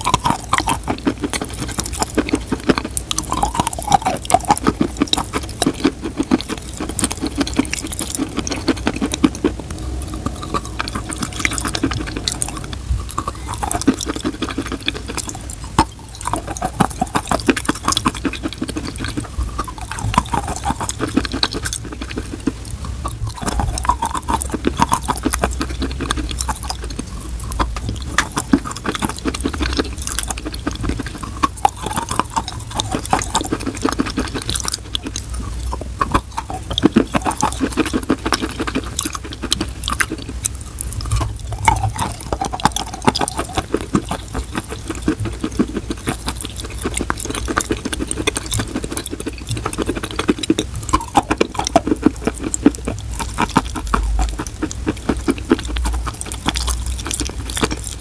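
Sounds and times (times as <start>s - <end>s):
wet mouth sounds: 0.0s - 58.0s.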